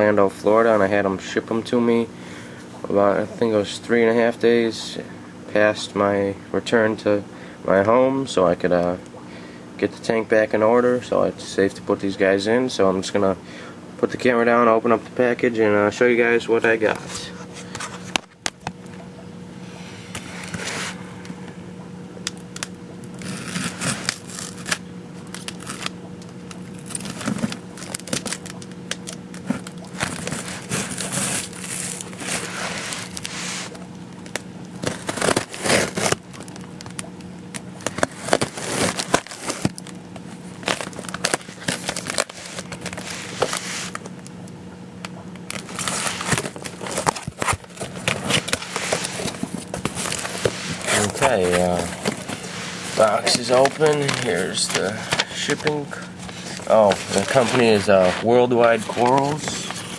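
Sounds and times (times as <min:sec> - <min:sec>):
steady low hum: 0:00.0 - 0:59.9
packing tape tearing: 0:22.6 - 0:37.1, 0:37.8 - 0:44.1, 0:45.5 - 0:59.9
cardboard crinkling and scraping: 0:23.2 - 0:36.8, 0:37.8 - 0:44.1, 0:45.5 - 0:59.9.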